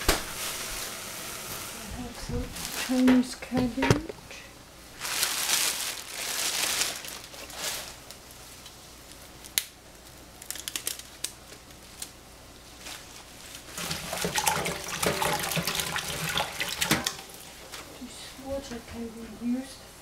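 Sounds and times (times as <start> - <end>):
plastic bag crinkling: 2.5 - 4.2, 4.9 - 8.4, 9.4 - 12.1
metal saucepan rattling in sink: 13.8 - 17.3.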